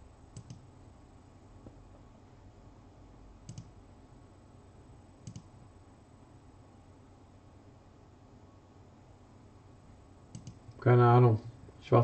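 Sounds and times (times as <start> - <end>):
quick double clicks: 5.2 - 5.5, 10.3 - 10.8.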